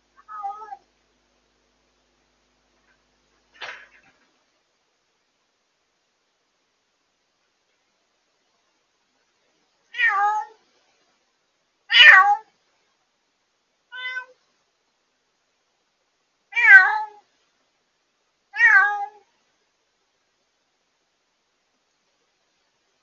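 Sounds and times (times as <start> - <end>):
cat meowing loudly: 0.2 - 0.8, 9.9 - 10.6, 11.9 - 12.5, 13.9 - 14.4, 16.5 - 17.2, 18.5 - 19.3.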